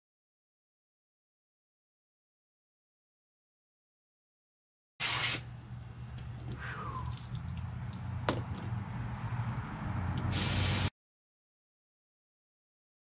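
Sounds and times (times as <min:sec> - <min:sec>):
hose water spraying: 0:05.0 - 0:05.4, 0:10.3 - 0:10.9
water splashing on concrete: 0:07.1 - 0:07.8.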